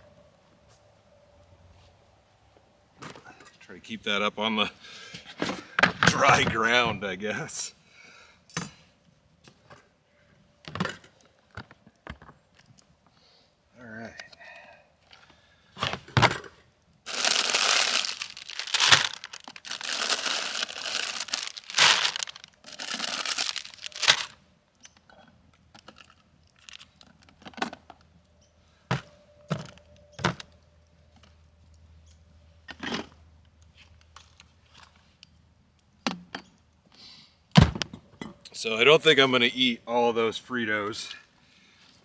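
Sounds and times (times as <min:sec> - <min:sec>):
plastic packaging crackling: 0:17.1 - 0:24.4.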